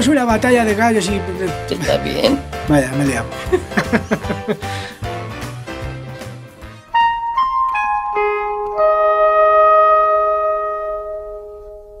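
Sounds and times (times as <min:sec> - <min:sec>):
piano notes ringing: 0:06.6 - 0:12.0.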